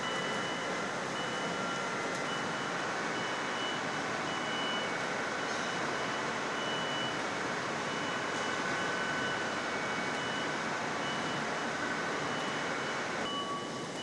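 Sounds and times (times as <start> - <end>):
high warning beep: 12.2 - 14.0.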